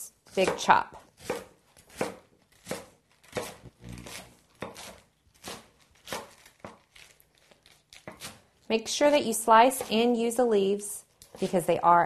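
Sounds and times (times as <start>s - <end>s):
knife chopping on wooden board: 0.4s - 6.8s, 9.6s - 10.1s.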